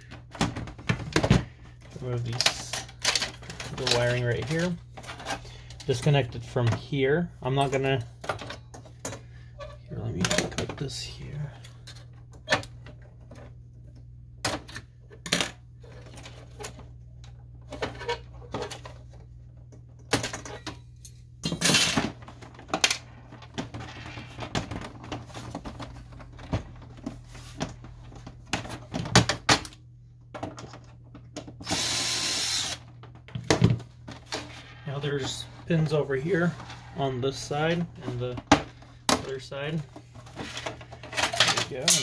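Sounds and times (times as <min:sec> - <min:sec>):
plastic and metal parts handled: 0:00.0 - 0:06.8, 0:32.6 - 0:42.0
cordless screwdriver running: 0:31.6 - 0:32.8.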